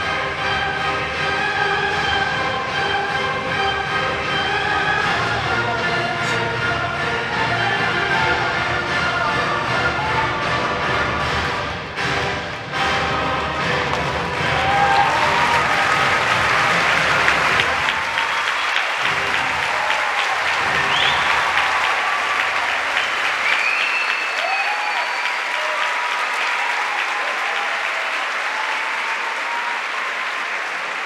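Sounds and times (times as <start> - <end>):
music: 0.0 - 23.9
audience applauding: 13.4 - 31.0
cheers and whistles: 14.4 - 31.0.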